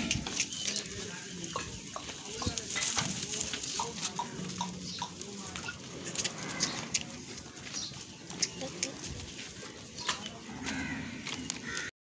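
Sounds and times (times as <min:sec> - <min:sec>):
goats shuffling and knocking: 0:00.0 - 0:11.7
faint voices: 0:00.0 - 0:11.9.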